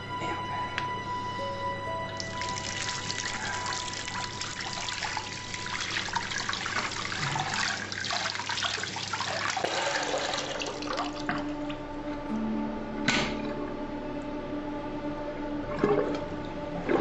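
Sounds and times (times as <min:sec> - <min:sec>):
tap water running into sink: 0:02.2 - 0:11.5.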